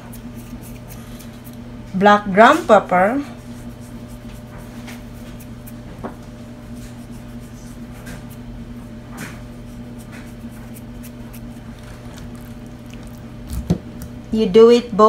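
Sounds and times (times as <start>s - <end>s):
steady low hum: 0.0s - 15.0s
pepper rustling onto meat: 9.6s - 14.1s.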